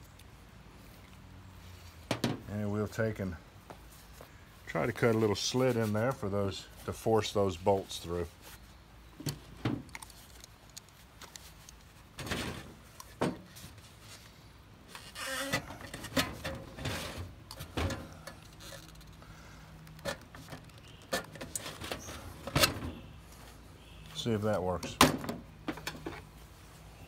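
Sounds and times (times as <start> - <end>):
tin can scraping and creaking: 14.9 - 19.3, 19.9 - 23.0.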